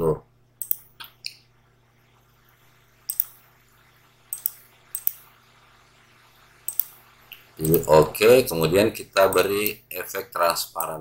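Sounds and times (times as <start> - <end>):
faint low hum: 0.0 - 11.0
computer mouse clicking: 0.6 - 1.4, 3.1 - 3.4, 4.3 - 5.4, 6.7 - 7.9.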